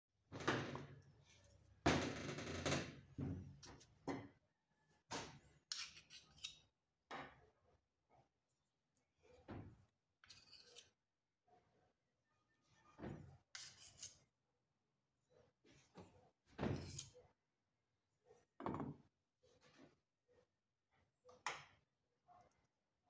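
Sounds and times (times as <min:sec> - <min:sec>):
metal spatula scraping plaster: 0:05.3 - 0:06.7, 0:10.2 - 0:11.0, 0:13.4 - 0:14.3, 0:16.7 - 0:17.3.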